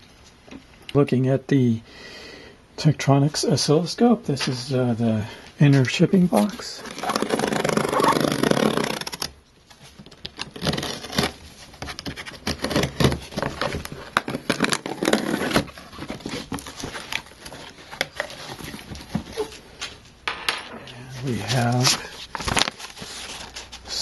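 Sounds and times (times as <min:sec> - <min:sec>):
cardboard flaps pulled open: 0:06.8 - 0:09.3
knife slitting packing tape: 0:06.8 - 0:09.3, 0:10.4 - 0:17.2.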